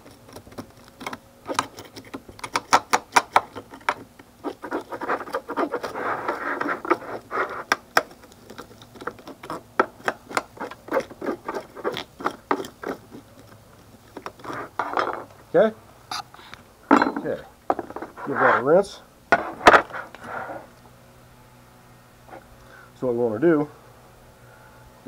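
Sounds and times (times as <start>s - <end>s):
fish scaler scraping scales: 4.4s - 15.0s.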